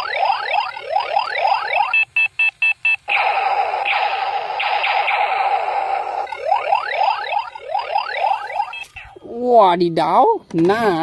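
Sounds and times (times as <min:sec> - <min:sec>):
steady buzzing blast: 0:03.1 - 0:08.9
rising laser-like zaps: 0:03.1 - 0:09.1
short electronic beeps: 0:06.2 - 0:09.3.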